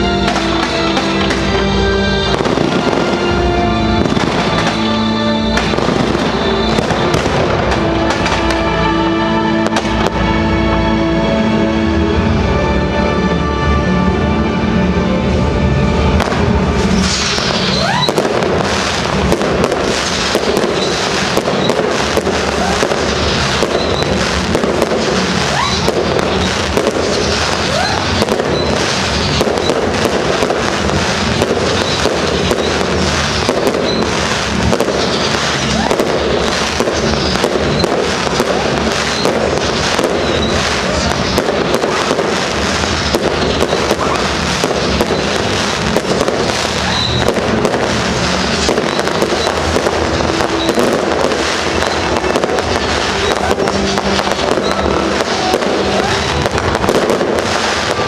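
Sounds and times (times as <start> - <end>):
fireworks bangs and crackle: 0.0 - 11.0, 15.8 - 58.0
whistles of launching rockets: 4.0 - 8.6, 16.8 - 58.0.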